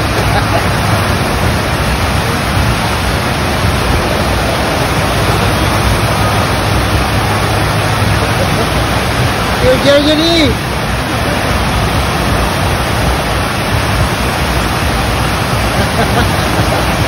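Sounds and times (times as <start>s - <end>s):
rushing water: 0.0s - 17.0s.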